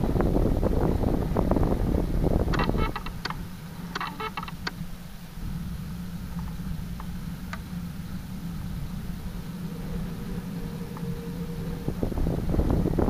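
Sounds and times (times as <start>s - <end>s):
aircraft engine drone: 0.0s - 13.0s
faint ticks: 6.3s - 7.9s, 9.2s - 12.0s.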